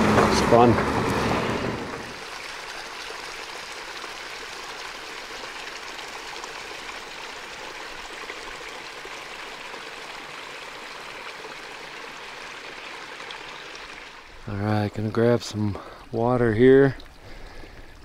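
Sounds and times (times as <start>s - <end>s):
creek water rushing: 0.0s - 18.0s.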